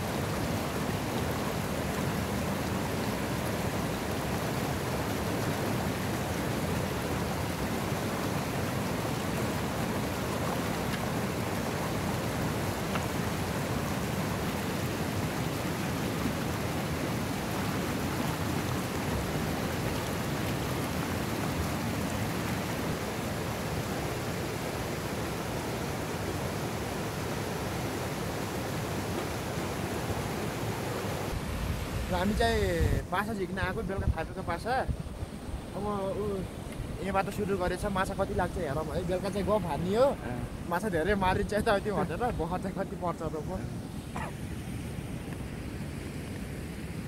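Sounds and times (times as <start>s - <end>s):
river flowing: 0.0s - 47.0s.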